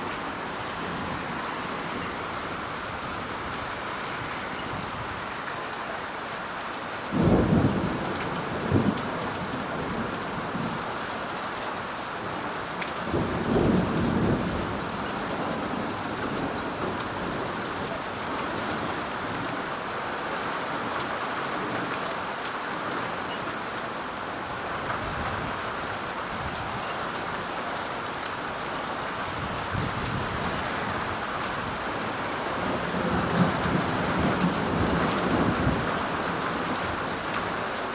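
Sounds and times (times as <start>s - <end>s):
thunder rumbling: 7.2s - 10.8s.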